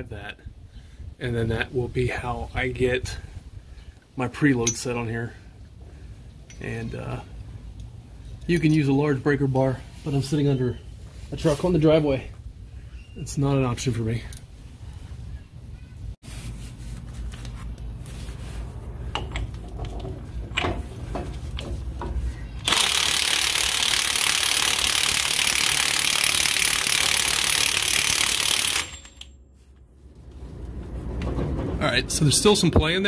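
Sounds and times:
impact wrench hammering: 0:22.6 - 0:29.3.

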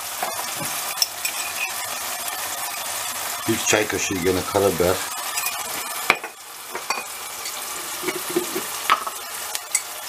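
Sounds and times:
onion and tomato sizzling in oil: 0:00.0 - 0:10.0.

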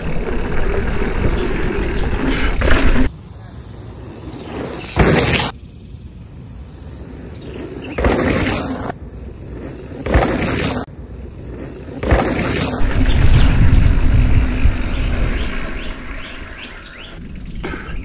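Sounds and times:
mountain bike tyre and frame noise: 0:00.0 - 0:18.0
low rumble: 0:12.7 - 0:16.7.

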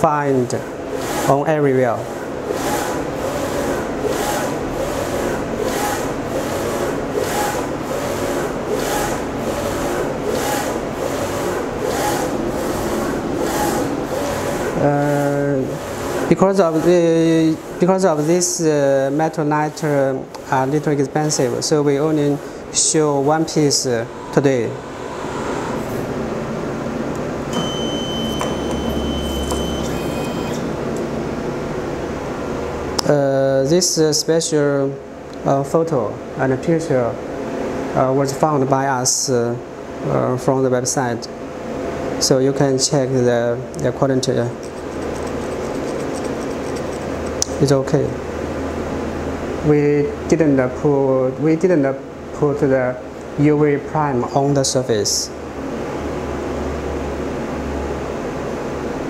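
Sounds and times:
steady motor hum: 0:00.0 - 0:33.1, 0:43.2 - 0:50.4
printer carriage swishing: 0:02.2 - 0:18.5, 0:27.5 - 0:30.9, 0:44.6 - 0:47.6.

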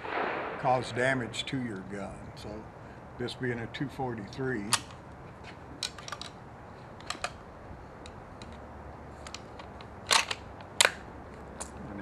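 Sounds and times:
rifle bolt clicking and clacking: 0:04.6 - 0:05.0, 0:05.8 - 0:06.4, 0:07.0 - 0:07.4, 0:08.0 - 0:11.1.

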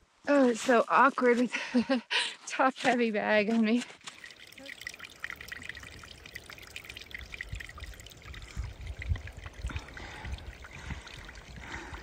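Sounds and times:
brook trickling over rock: 0:02.6 - 0:12.0.

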